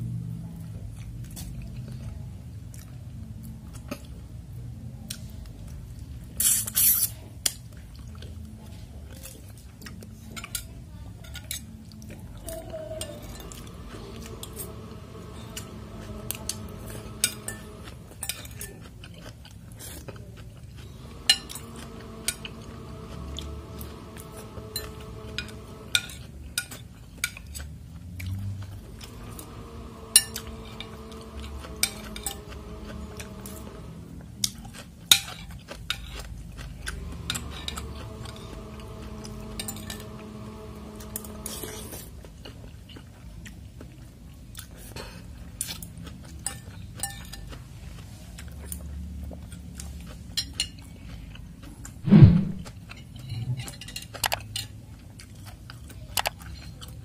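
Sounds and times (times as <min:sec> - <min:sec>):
chewing: 0:00.5 - 0:04.3, 0:05.0 - 0:52.0, 0:52.7 - 0:57.0
cutlery clinking on glass bowl: 0:46.4 - 0:47.5
loud knock: 0:52.1 - 0:52.7.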